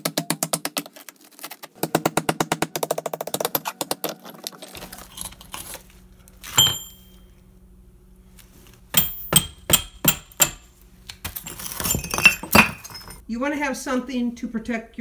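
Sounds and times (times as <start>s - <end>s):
hammer striking steel chisel: 6.5s - 7.1s, 8.9s - 10.6s.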